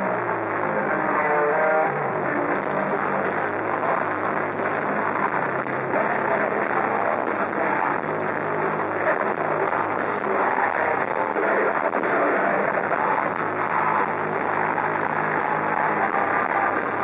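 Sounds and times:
metal band playing live: 0.0s - 17.0s.

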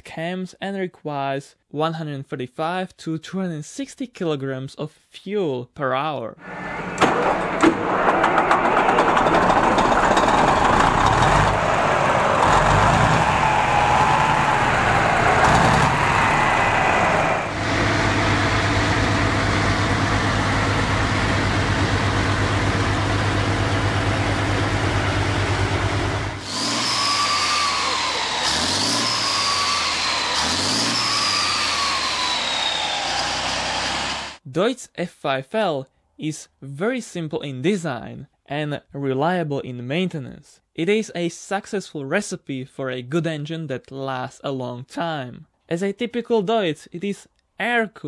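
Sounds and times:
engine revving: 6.4s - 34.4s
engine whine: 6.4s - 34.4s
diesel engine running: 6.5s - 34.4s.

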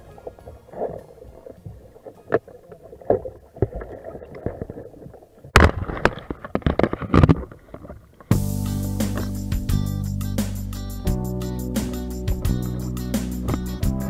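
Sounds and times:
music: 0.0s - 2.5s, 8.3s - 14.0s
water splashing and sloshing: 0.0s - 8.3s.

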